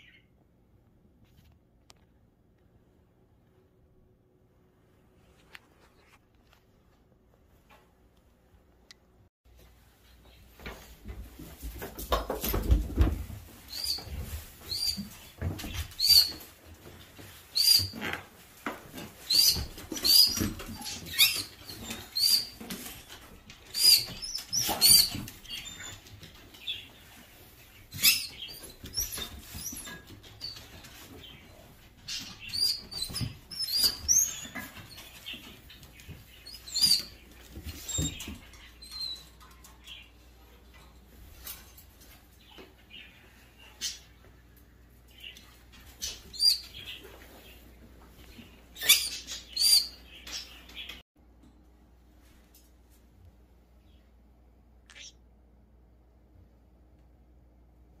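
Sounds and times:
parrot chirping calls: 54.9s - 55.2s.

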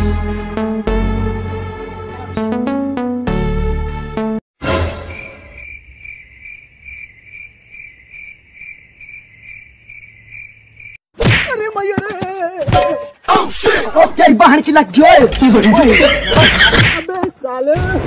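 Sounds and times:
crickets chirping: 5.0s - 11.0s.

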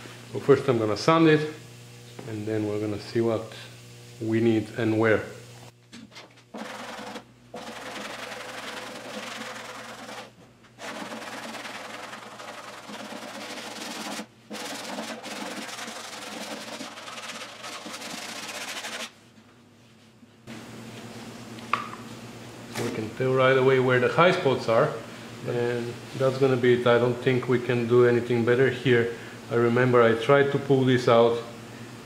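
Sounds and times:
sanding block scraping metal: 6.6s - 19.2s.

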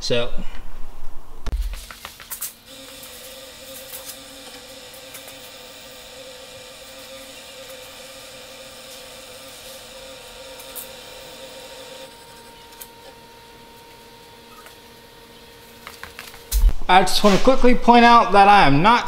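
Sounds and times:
chain motor whining: 1.7s - 13.1s.

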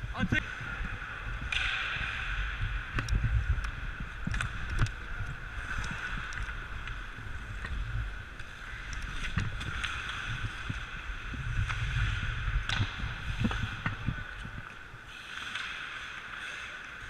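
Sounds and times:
wind on microphone: 0.0s - 14.7s
hockey stick clacks: 1.4s - 7.8s, 8.4s - 17.0s
skate blades scraping ice: 4.3s - 17.0s.

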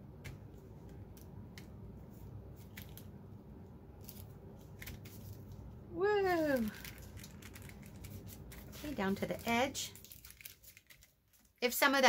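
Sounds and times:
paper ticks and rustles: 6.5s - 11.6s.

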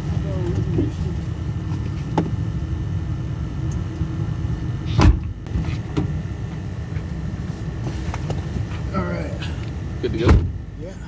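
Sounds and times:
loud thump: 5.0s - 6.1s.

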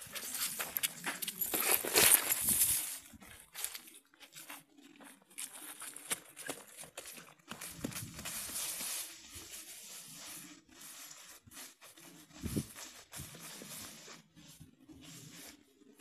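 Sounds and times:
dry leaves rustling: 0.0s - 3.9s.

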